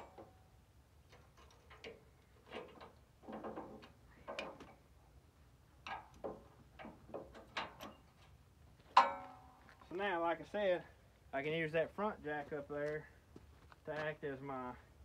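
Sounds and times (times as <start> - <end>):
metal parts and tools clanking: 0.0 - 4.8, 5.8 - 9.7.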